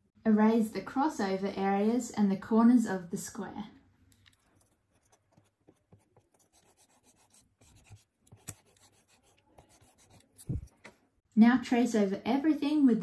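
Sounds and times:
eraser rubbing on paper: 4.6s - 10.7s.

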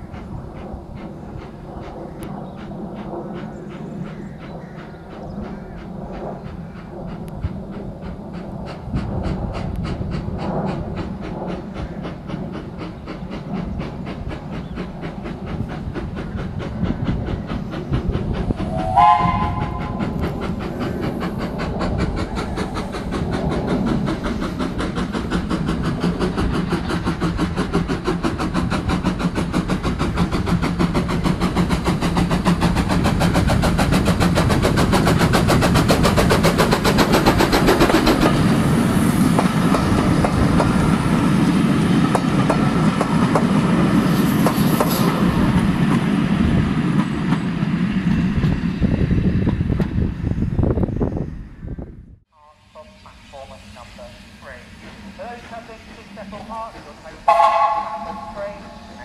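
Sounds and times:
steam engine exhaust beats: 0.0s - 50.1s, 52.5s - 59.0s
steam whistle blast: 18.7s - 19.9s, 57.3s - 59.0s.

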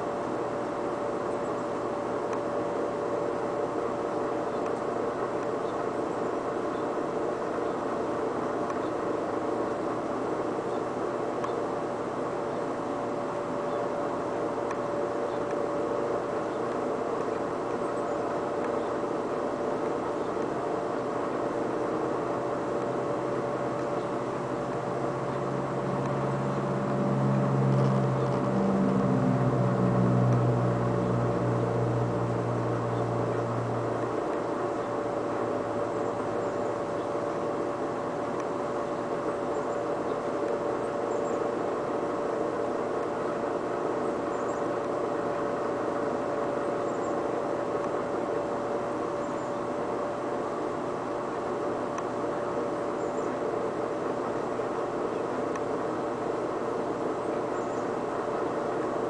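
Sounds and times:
air conditioner and fan whirring: 0.0s - 59.0s
deeper rising hum: 22.5s - 36.4s.

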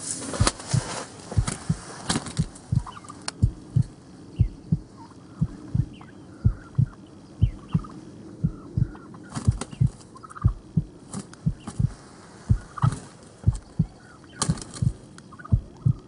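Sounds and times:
heartbeat double thump: 0.4s - 16.0s
sharp snaps: 0.4s - 16.0s
turkey gobblers calling: 2.8s - 3.1s, 5.0s - 10.8s, 12.6s - 14.4s, 15.3s - 16.0s.

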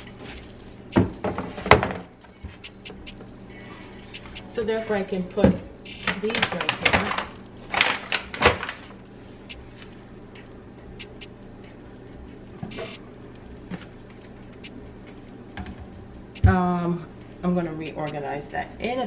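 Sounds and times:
low steady hum: 0.0s - 19.0s
packets rustling: 6.1s - 8.9s.

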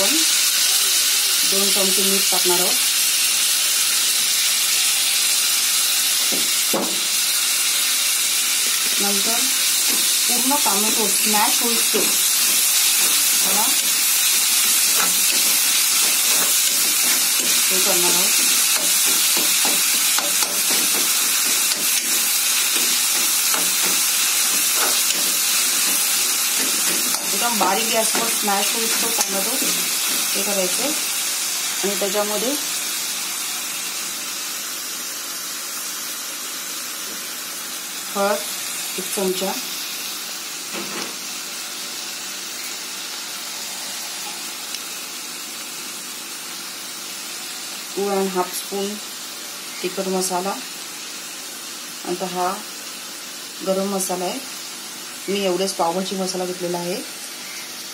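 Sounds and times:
vegetables sizzling in oil: 0.0s - 57.9s
steel spoon scraping a pan: 9.6s - 30.4s.

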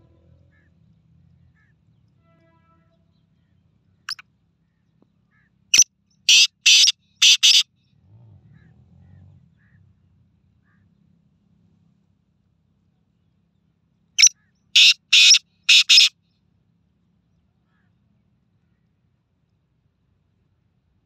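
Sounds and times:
faint low rumble: 0.0s - 3.6s
francolin calling: 6.3s - 7.6s, 14.2s - 16.1s.

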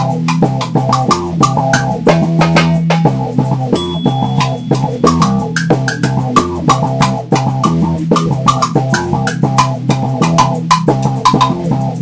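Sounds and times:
bass guitar: 0.0s - 12.0s
drum kit steady beat: 0.0s - 12.0s
guitar: 0.0s - 12.0s.

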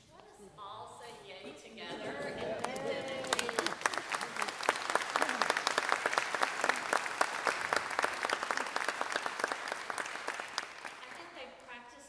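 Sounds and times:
crowd applauding: 2.2s - 11.7s.

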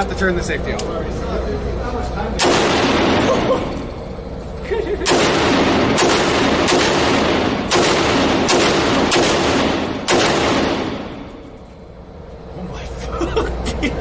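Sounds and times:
rifle shots echoing indoors: 2.4s - 4.0s, 5.0s - 11.6s.

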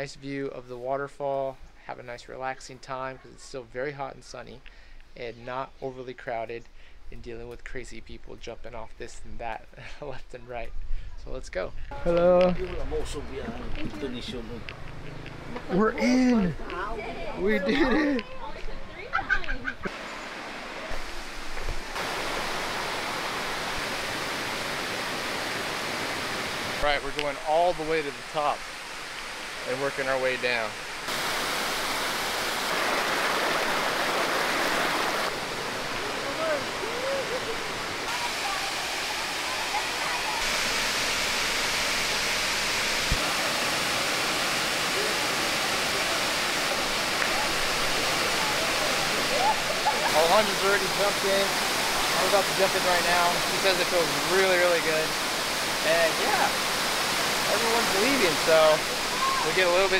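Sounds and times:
waterfall rushing: 19.8s - 59.9s.

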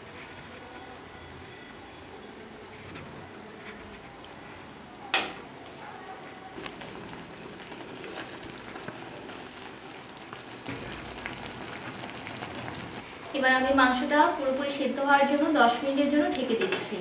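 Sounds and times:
gravy bubbling in a pan: 6.5s - 13.3s
spatula stirring: 6.6s - 13.0s.

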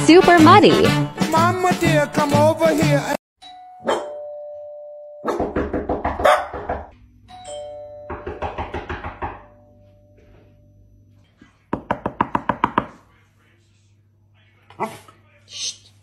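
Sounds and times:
two-tone doorbell chime: 3.4s - 5.4s, 7.3s - 8.4s, 9.4s - 10.9s.

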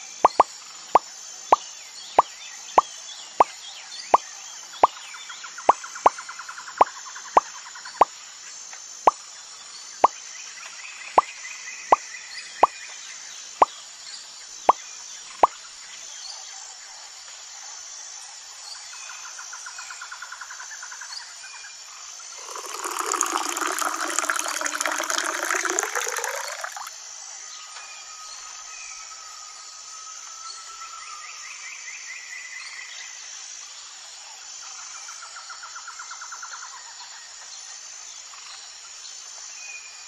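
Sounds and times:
high chirping and trills: 0.3s - 0.5s
water splashing into plastic tub: 22.4s - 26.9s.

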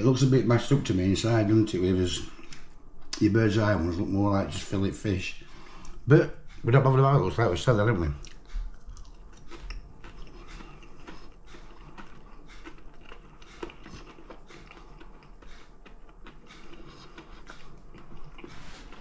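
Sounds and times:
person chewing: 2.2s - 2.8s, 8.1s - 19.0s.

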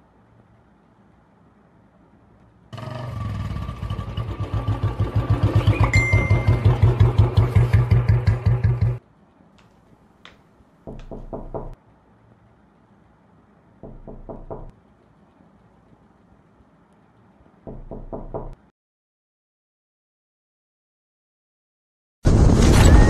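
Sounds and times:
knocking on wooden door: 10.9s - 11.8s, 13.8s - 14.7s, 17.7s - 18.6s.

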